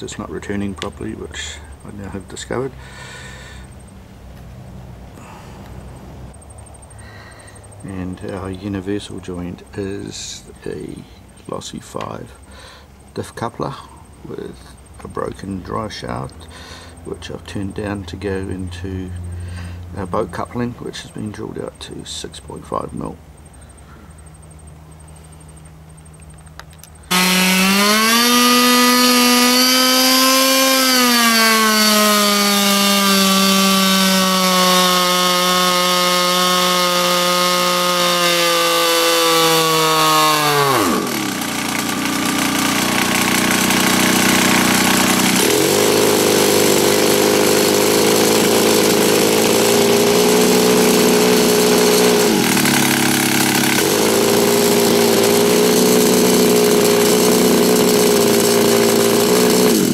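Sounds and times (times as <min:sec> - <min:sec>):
two-stroke engine at high revs: 0:27.1 - 0:59.9.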